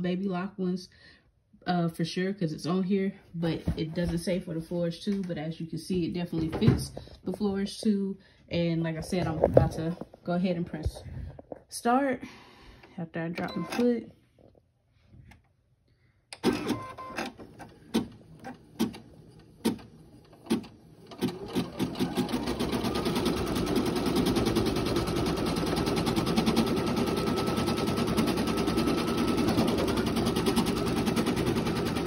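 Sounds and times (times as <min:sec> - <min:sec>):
embroidery machine stitching: 0:16.4 - 0:32.0.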